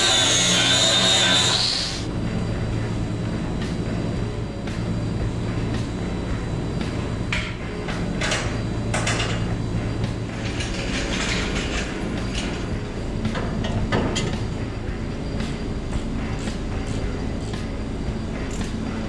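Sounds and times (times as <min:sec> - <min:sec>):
steady low hum: 0:01.9 - 0:19.0.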